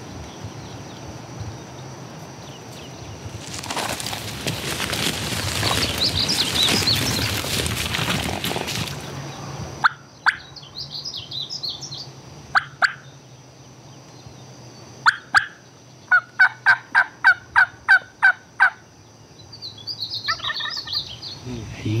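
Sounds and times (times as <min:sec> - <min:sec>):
turkey yelps: 0:12.6 - 0:13.0, 0:15.0 - 0:18.8, 0:20.3 - 0:21.0
small songbird twittering: 0:19.4 - 0:21.6.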